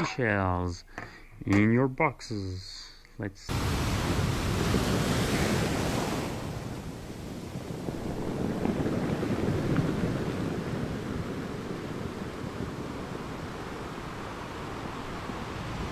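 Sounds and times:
sea waves washing on shore: 3.5s - 15.9s.

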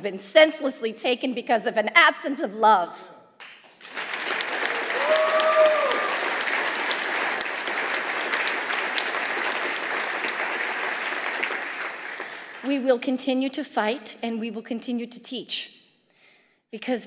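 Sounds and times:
audience applauding: 3.6s - 12.8s.

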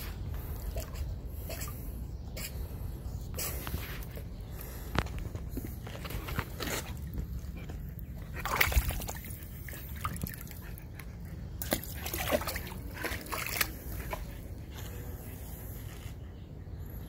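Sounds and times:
water splashing in paddling pool: 11.6s - 14.1s.

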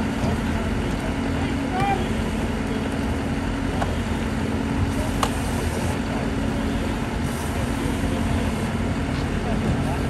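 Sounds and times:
foam spray hissing: 7.2s - 8.6s.

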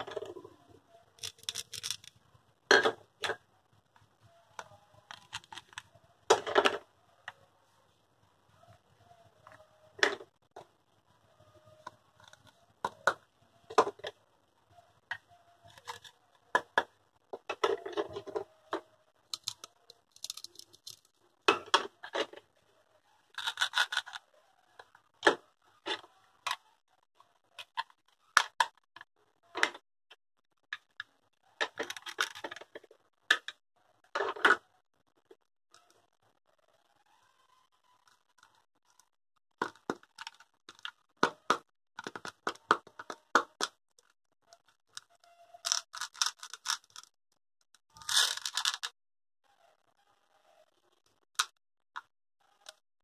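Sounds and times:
plastic toy pieces clicking: 1.2s - 2.2s, 4.6s - 5.9s, 19.3s - 21.1s, 23.3s - 24.2s, 31.6s - 32.7s, 44.9s - 47.1s, 48.0s - 48.9s
scratchy plastic rubbing: 1.2s - 2.3s, 17.4s - 21.2s, 23.3s - 26.8s, 37.0s - 47.1s, 47.8s - 48.9s.

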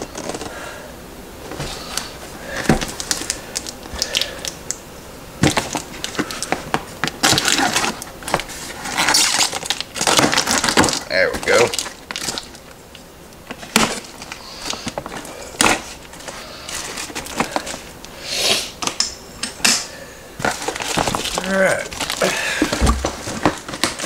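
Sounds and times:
cardboard rustling: 0.0s - 0.6s, 5.4s - 12.6s, 13.5s - 18.0s, 20.4s - 24.0s.

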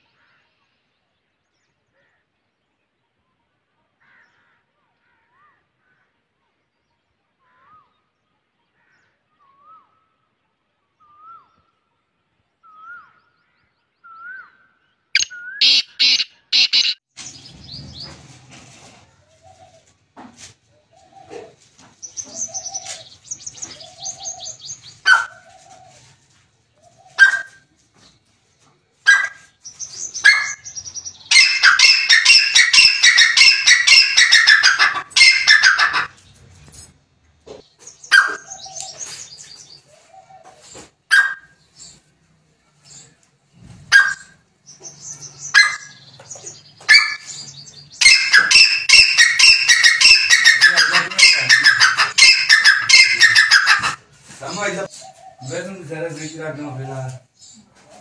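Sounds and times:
bird calling ringing notes: 12.6s - 18.1s, 29.7s - 36.2s, 44.1s - 54.0s.

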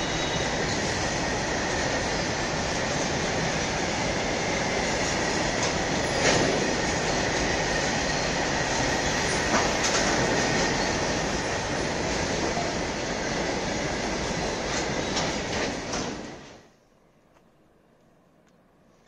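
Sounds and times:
train wheels rumbling on rail: 0.0s - 16.7s.

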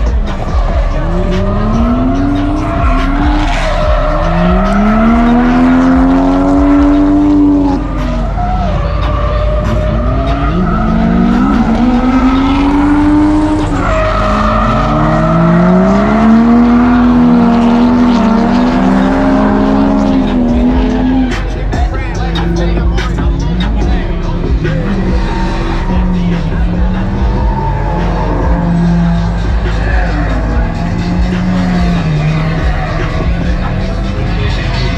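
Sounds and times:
car engine revving: 0.0s - 34.9s
tyres squealing: 0.0s - 34.9s.

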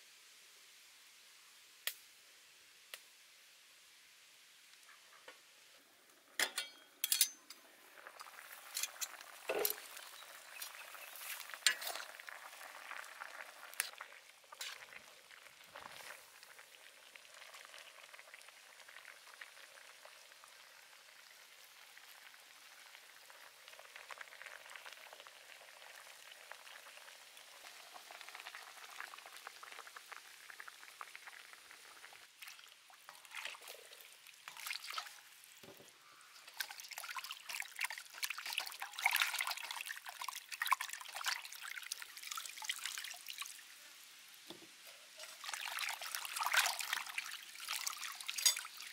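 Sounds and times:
broth bubbling and sizzling: 0.0s - 48.9s
metal tongs and ladle clinking: 6.4s - 7.6s, 8.2s - 10.8s, 11.6s - 12.0s, 48.3s - 48.8s.

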